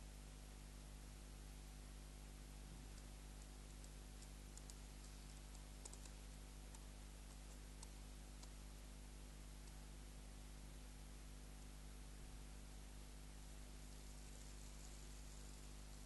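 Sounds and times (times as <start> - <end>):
low hum and hiss: 0.0 - 16.0
faint small clicks: 2.8 - 8.7, 9.6 - 9.9, 11.6 - 11.8.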